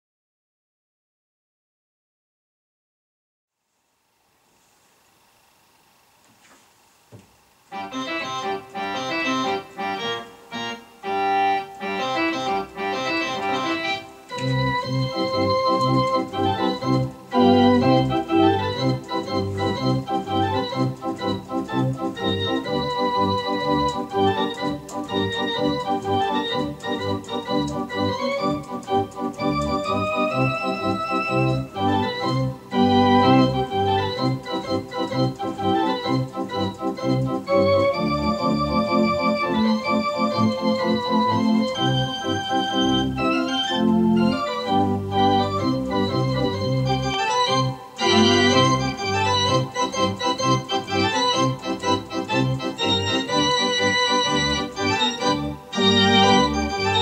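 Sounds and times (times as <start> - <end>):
digital organ playing a march: 7.7 - 57.0
organ bass line: 7.7 - 57.0.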